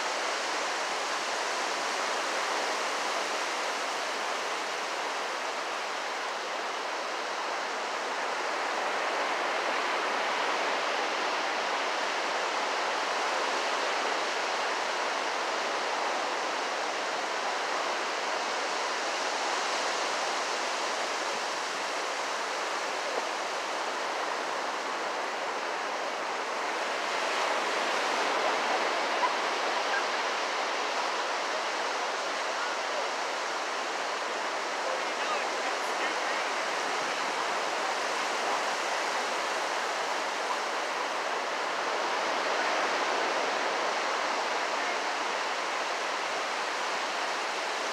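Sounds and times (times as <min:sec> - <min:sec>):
ocean surf breaking: 0:19.6 - 0:47.8.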